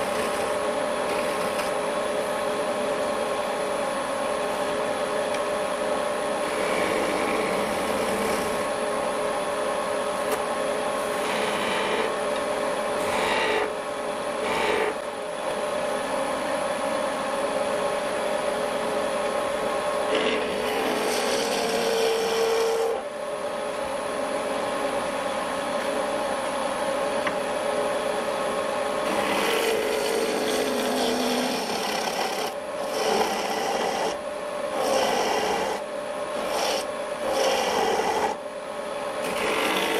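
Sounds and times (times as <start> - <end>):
chisel scraping spinning wood: 0.0 - 2.0, 6.3 - 8.8, 10.1 - 15.6, 20.0 - 23.1, 29.0 - 38.4, 39.2 - 39.9
wood lathe humming: 0.0 - 23.1, 27.7 - 39.9.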